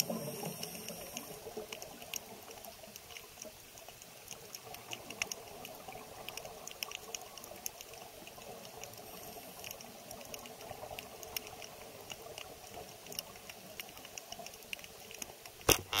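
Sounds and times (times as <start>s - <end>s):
underwater rushing hiss: 0.0s - 1.6s, 9.0s - 9.8s
underwater clicks and crackles: 0.0s - 16.0s.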